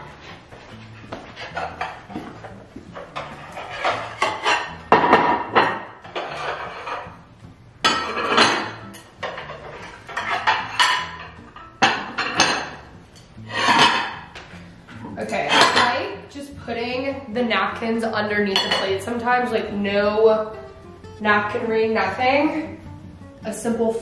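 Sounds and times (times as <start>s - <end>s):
background music: 0.0s - 24.0s
ceramic plates clinking: 1.1s - 7.2s, 7.8s - 16.2s, 18.4s - 19.2s.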